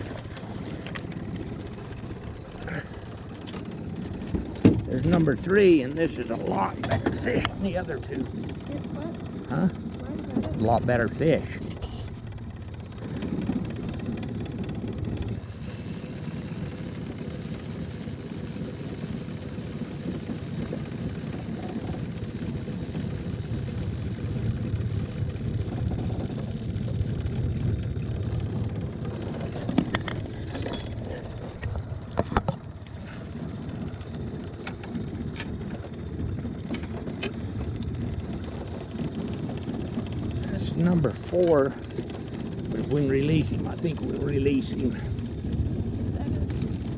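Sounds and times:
outboard motor droning: 0.0 - 46.9
sharp clicks and knocks: 6.0 - 8.2, 29.3 - 32.8.

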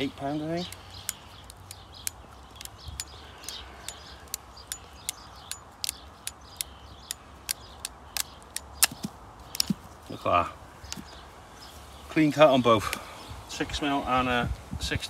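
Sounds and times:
ratchet cable cutter clicking: 0.7 - 9.8.

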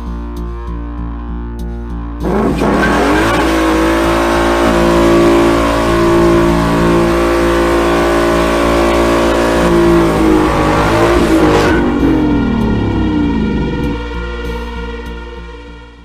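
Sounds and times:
car engine at high revs: 2.2 - 15.0.

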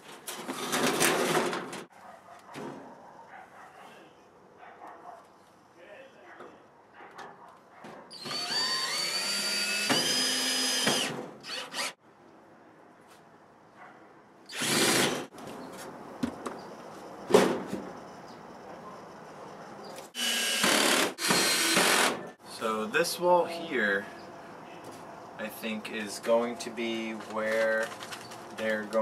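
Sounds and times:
cordless drill whining: 8.2 - 12.0, 14.5 - 15.1, 20.2 - 22.1.

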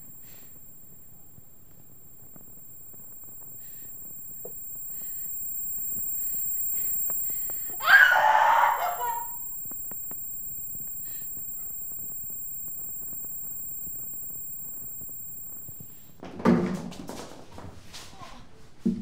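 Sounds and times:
faint high steady tone: 0.0 - 16.2
steady hiss: 0.0 - 16.2
woman screaming: 7.8 - 9.4.

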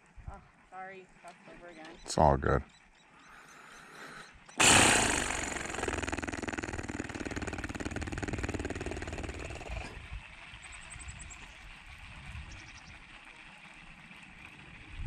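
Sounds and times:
fishing reel whirring: 4.6 - 10.0.

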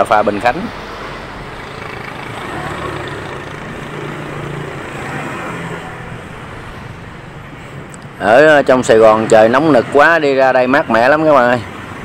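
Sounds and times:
road noise: 0.0 - 12.0
motor scooters passing: 0.7 - 8.5.

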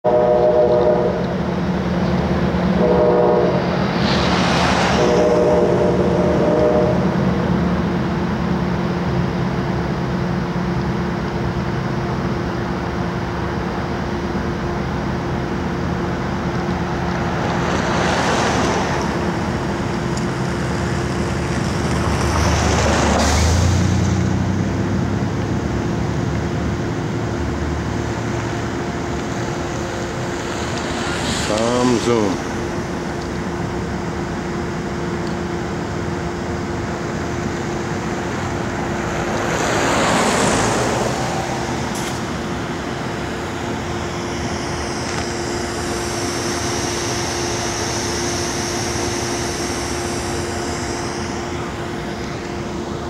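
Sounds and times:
locomotive horn blasts: 0.0 - 1.5, 2.7 - 3.8, 4.8 - 7.6, 44.2 - 52.8
rushing noise: 0.0 - 53.0
train rumbling past: 0.0 - 53.0.

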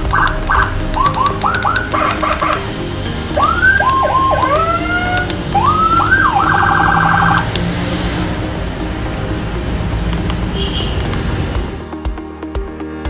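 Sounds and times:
electronic siren whoops and warble: 0.0 - 2.7, 3.3 - 7.5.

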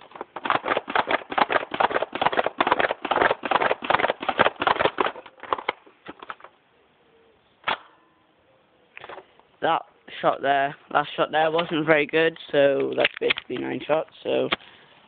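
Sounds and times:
sharp pop of dart firing: 7.6 - 8.0.

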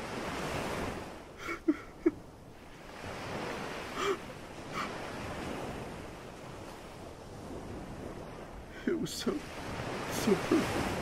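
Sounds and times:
man sobbing: 1.4 - 2.2, 3.9 - 5.0, 10.2 - 10.8.

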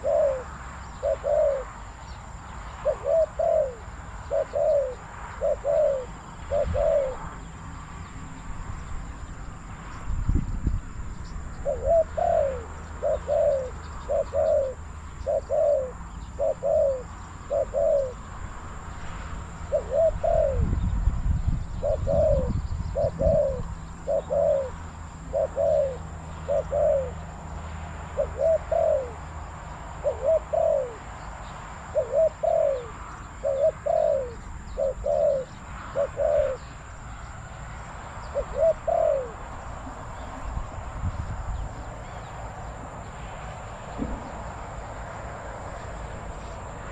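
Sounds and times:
dove cooing: 0.0 - 1.9, 2.7 - 7.4, 11.5 - 18.4, 19.6 - 21.0, 21.8 - 27.4, 28.1 - 31.3, 31.9 - 37.0, 38.2 - 40.6.

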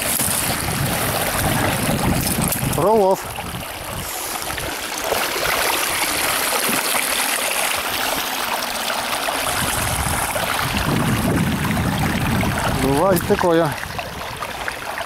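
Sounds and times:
stream water trickling: 0.0 - 15.0.

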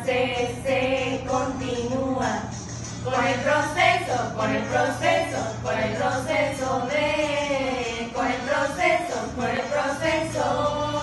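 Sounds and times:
young women singing in unison: 0.0 - 11.0.

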